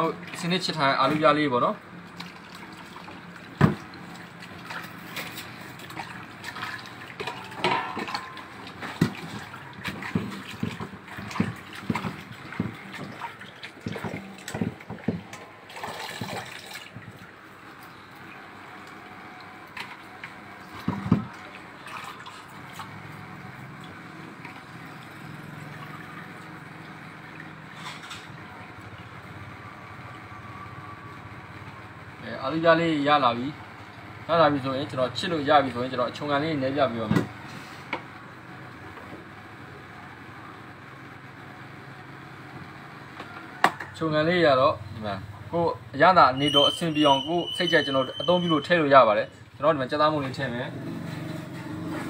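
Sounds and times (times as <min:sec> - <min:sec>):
water splashing in a bowl: 0:00.0 - 0:29.3
knocks against metal bowl: 0:07.6 - 0:08.4.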